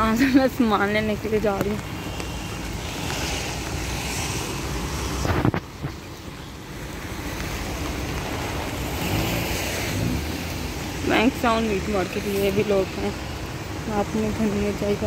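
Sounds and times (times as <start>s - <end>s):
rain on a wet street: 0.0s - 15.0s
wind noise on microphone: 1.8s - 6.1s.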